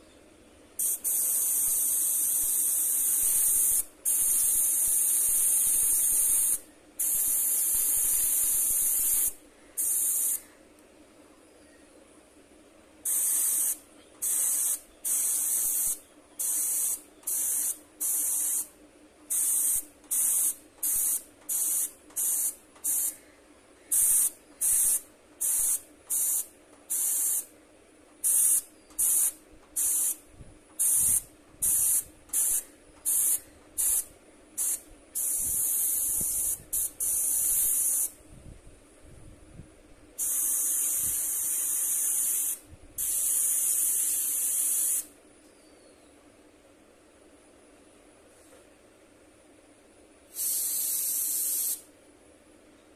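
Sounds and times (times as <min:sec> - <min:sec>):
airbrush spraying hiss: 0:00.8 - 0:10.5, 0:13.0 - 0:23.2, 0:23.9 - 0:27.5, 0:28.2 - 0:30.2, 0:30.8 - 0:38.2, 0:40.2 - 0:45.2, 0:50.3 - 0:51.9.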